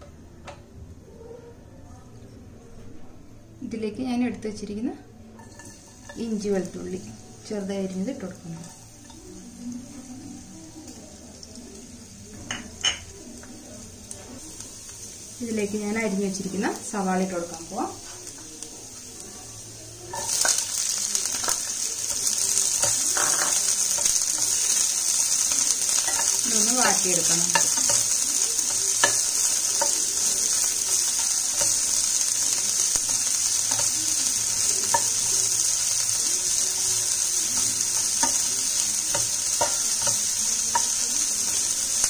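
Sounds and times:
food sizzling in hot oil: 5.3 - 42.0
spatula tapping pan: 20.1 - 41.7.

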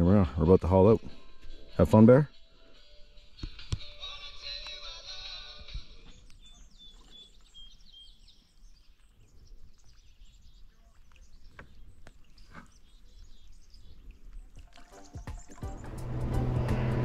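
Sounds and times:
paddle splashes in water: 10.6 - 15.9.

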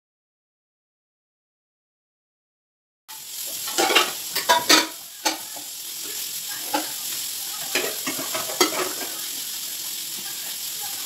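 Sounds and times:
metal pots and pans clanking: 3.5 - 5.7, 6.6 - 7.0, 7.6 - 9.2.

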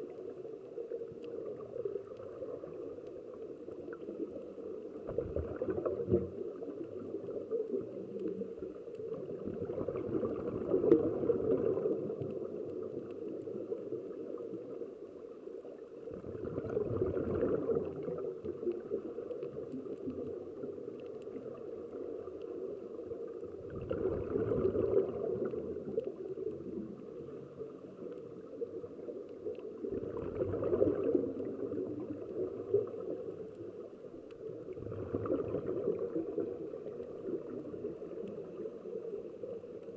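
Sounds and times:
muffled underwater hiss: 0.0 - 39.9
air bubbling underwater: 23.6 - 25.8.

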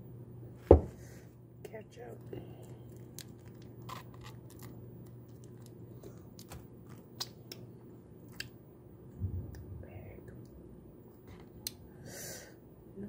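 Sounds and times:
steady low hum: 0.0 - 13.0
plastic packet crinkling: 2.6 - 7.3.

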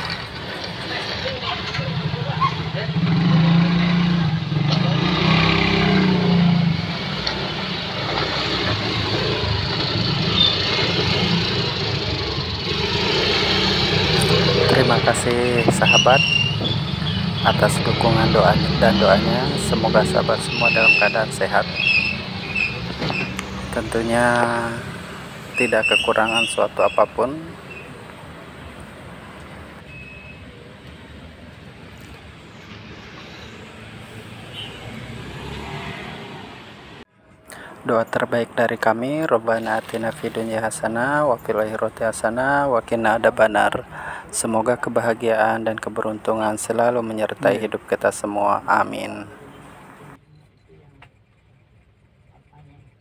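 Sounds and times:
vehicle engine running: 0.0 - 29.0
street noise: 0.0 - 53.0.

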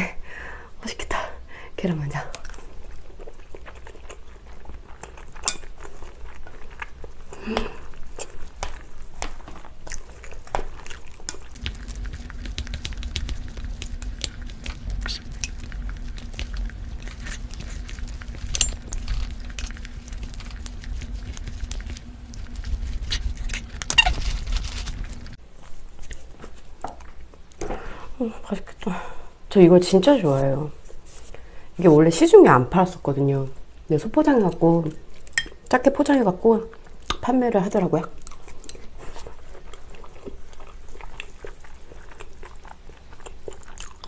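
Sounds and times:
chewing: 2.3 - 27.6, 38.0 - 44.0.

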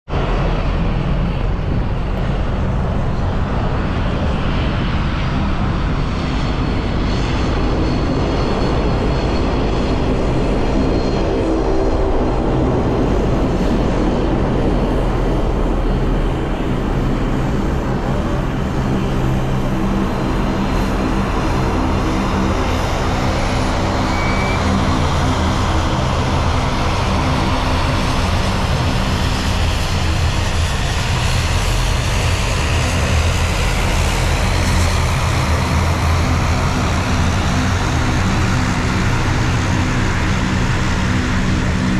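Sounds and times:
turboprop engines droning: 0.1 - 41.9.

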